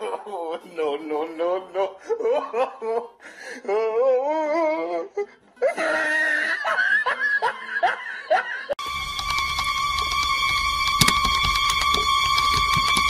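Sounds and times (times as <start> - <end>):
person laughing: 0.0 - 0.9, 1.8 - 3.8, 4.9 - 8.8
person giggling: 2.0 - 3.2, 5.0 - 8.8.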